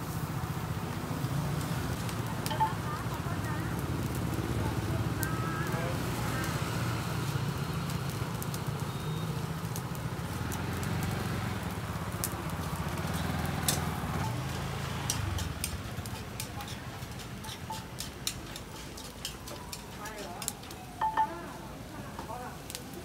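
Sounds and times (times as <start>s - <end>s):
crackling clicks: 12.2s - 21.3s.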